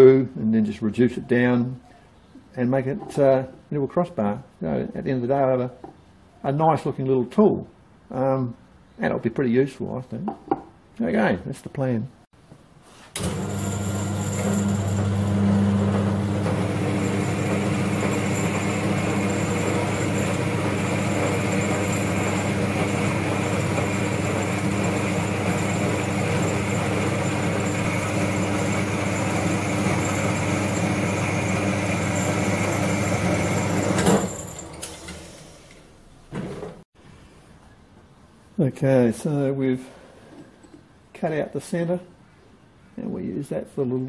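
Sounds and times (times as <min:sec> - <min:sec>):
bandsaw motor hum: 0:13.2 - 0:35.8.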